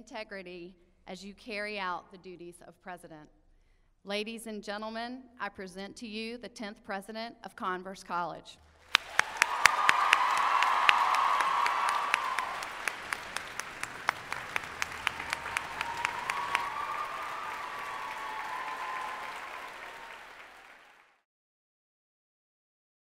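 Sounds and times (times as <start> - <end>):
audience applauding: 8.8 - 21.2.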